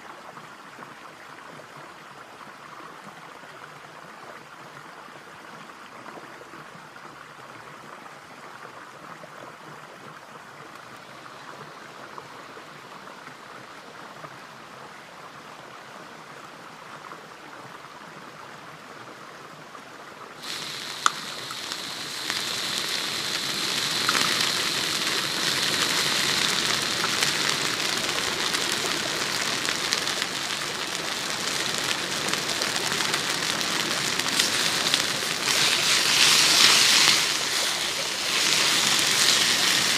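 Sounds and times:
stream flowing: 0.0s - 39.9s
meat sizzling in a pan: 20.4s - 39.9s.

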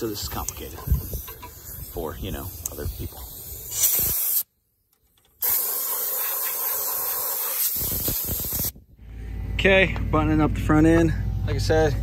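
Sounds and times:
compressed air hissing from blowgun: 0.2s - 4.5s, 5.4s - 8.8s.

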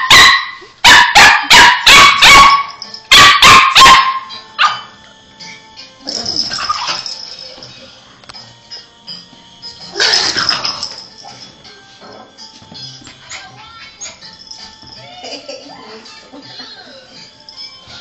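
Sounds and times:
small dogs yapping: 0.0s - 4.8s, 6.2s - 7.1s.

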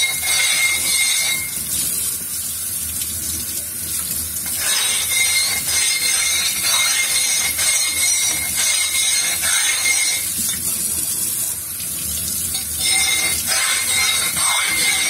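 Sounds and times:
metal scraping on wet plate: 0.0s - 1.6s, 4.4s - 10.6s, 12.5s - 15.0s.

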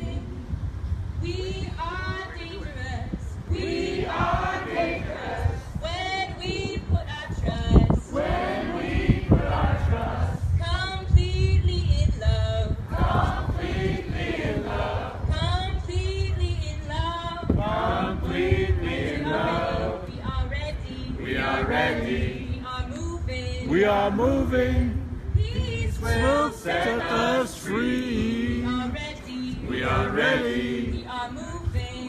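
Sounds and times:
group singing together: 3.5s - 10.6s, 12.8s - 15.3s, 17.5s - 20.2s, 21.0s - 22.6s, 23.6s - 25.0s, 25.8s - 31.1s.

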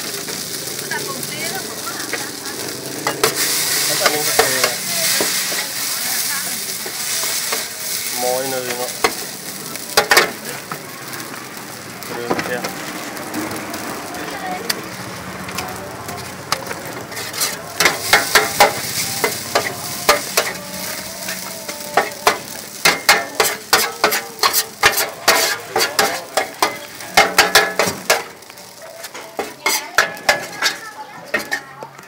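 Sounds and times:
oil sizzling: 0.0s - 32.0s
metal spatula scraping a pan: 2.1s - 9.2s, 16.6s - 28.3s, 28.9s - 31.7s.

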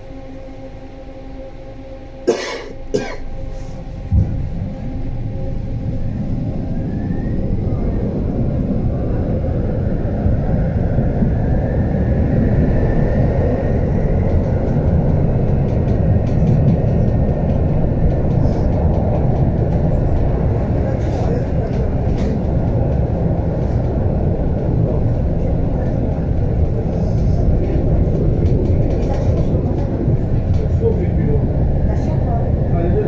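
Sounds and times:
tram starting thump: 0.0s - 8.5s, 13.6s - 32.7s
tram hum: 0.0s - 33.0s
wheels rumbling on rails: 0.0s - 33.0s
rising motor whine: 3.3s - 15.6s.

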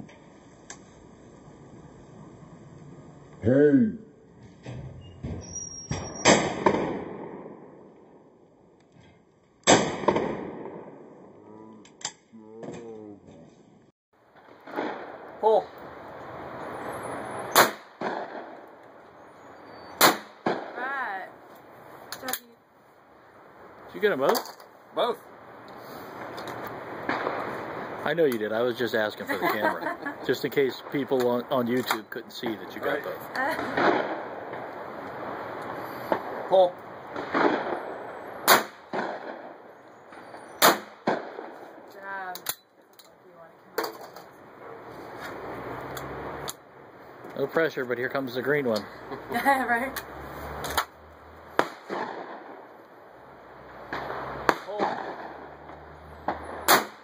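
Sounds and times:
shotgun shots: 6.2s - 7.7s, 9.6s - 11.0s, 14.6s - 15.2s, 17.5s - 18.6s, 20.0s - 20.8s, 27.1s - 27.5s, 33.6s - 34.7s, 37.1s - 39.6s, 40.2s - 41.6s, 51.6s - 52.6s, 53.9s - 55.6s, 56.2s - 57.0s
softer echoing crack: 14.4s - 15.4s, 26.2s - 28.5s.

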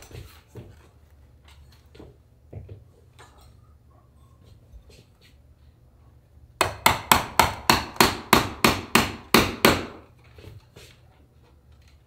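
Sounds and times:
hammer tapping on metal tools: 6.6s - 10.0s.

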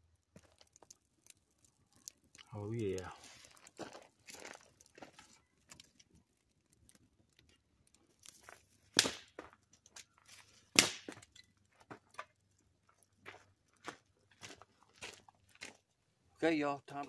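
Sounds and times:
dry sticks snapping: 7.4s - 11.5s.

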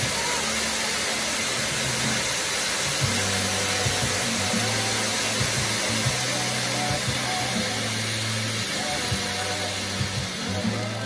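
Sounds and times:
firework fountains hissing: 0.0s - 11.0s
music: 0.0s - 11.0s.

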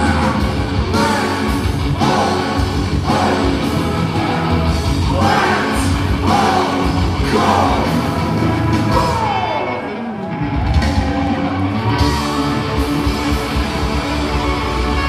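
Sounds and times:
person singing: 0.0s - 10.2s
metal band playing live: 0.0s - 15.0s.

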